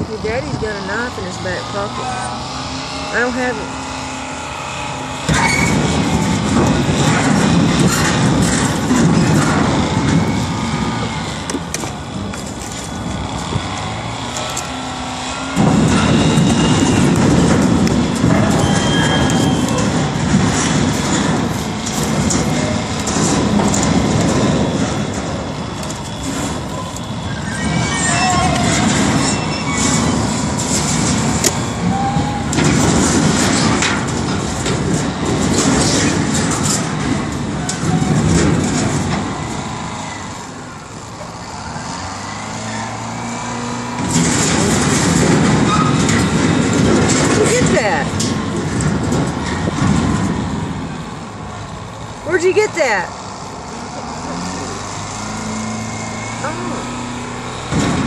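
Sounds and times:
wheel loader diesel engine rumble: 0.0 - 58.0
debris clanks and crashes: 5.2 - 41.5, 42.9 - 52.7, 56.2 - 58.0
faint squeals and ticks: 25.8 - 30.0.

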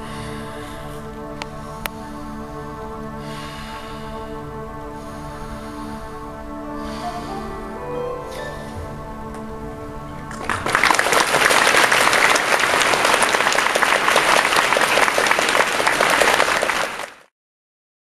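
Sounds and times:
music: 0.0 - 17.3
loud applause: 10.2 - 17.3.

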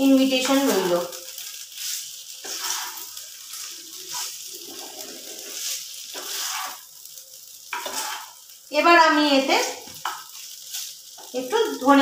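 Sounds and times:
chicken sizzling in frying pan: 0.0 - 12.0
spatula scraping pan: 1.7 - 6.9, 7.7 - 8.5.

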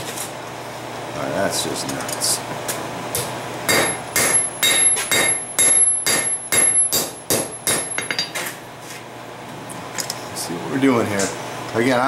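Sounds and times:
hammer striking steel on anvil: 3.2 - 8.4.

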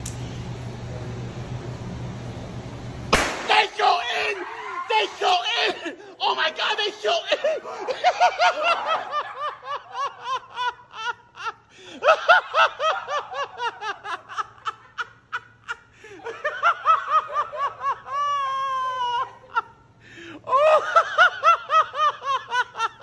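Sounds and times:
drawn-out squeal: 4.4 - 5.2
person laughing: 5.5 - 23.0.

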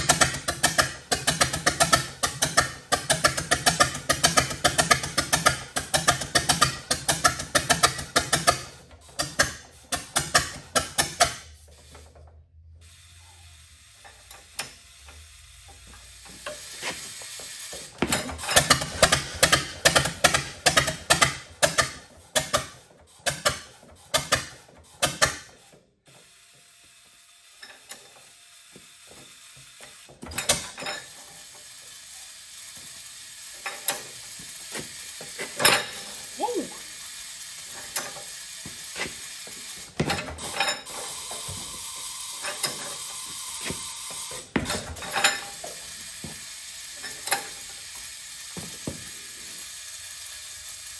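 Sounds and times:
tractor engine popping unevenly: 0.0 - 11.4.

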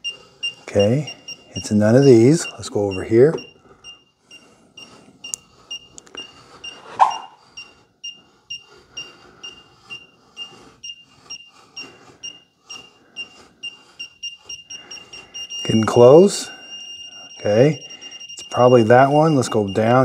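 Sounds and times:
short high beeps: 0.0 - 5.0, 5.7 - 20.0.

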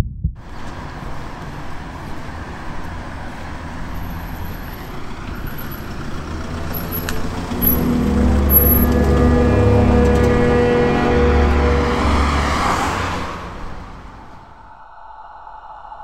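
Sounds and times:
distant road traffic: 0.4 - 15.9
background music drone: 7.3 - 14.6.

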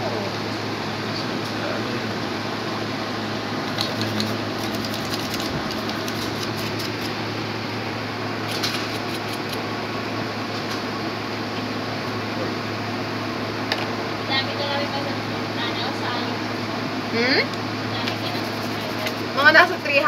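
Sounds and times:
fan hum: 0.0 - 20.0
laptop parts clicking and rattling: 3.8 - 7.2.

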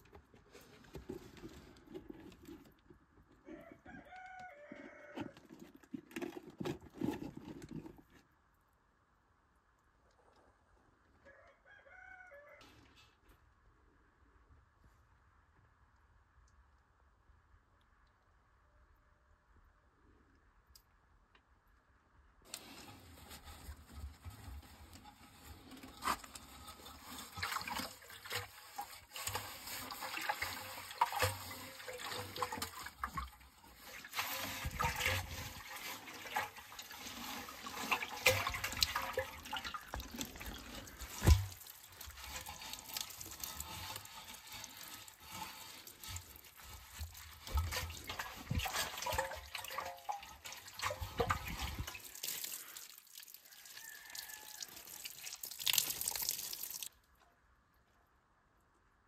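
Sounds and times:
wet mitt scrubbing metal tank: 22.5 - 56.9
water sloshing and dripping: 22.5 - 57.2.

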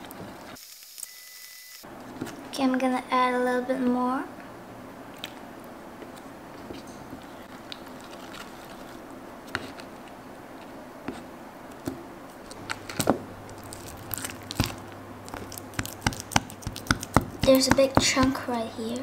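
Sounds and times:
stick stirring slime in bowl: 12.5 - 18.6
sharp clicks and taps: 14.6 - 18.4.

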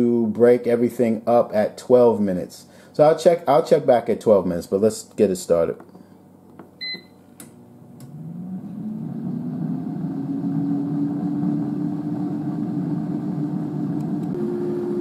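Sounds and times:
short beep: 6.8 - 7.2
air fryer fan whirring: 6.8 - 15.0.

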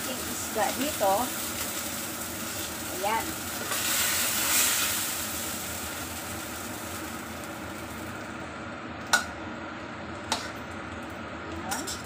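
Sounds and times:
food sizzling in a wok: 0.0 - 8.4.

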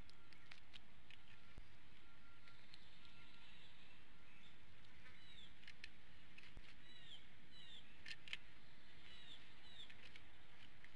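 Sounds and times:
bird chirps: 1.2 - 5.8, 6.6 - 10.7
sharp clicks: 5.5 - 6.8, 8.0 - 8.4.

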